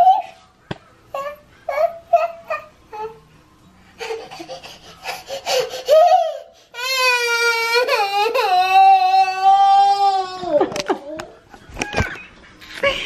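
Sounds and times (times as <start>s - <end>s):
toddler sobbing and crying: 4.0s - 11.3s.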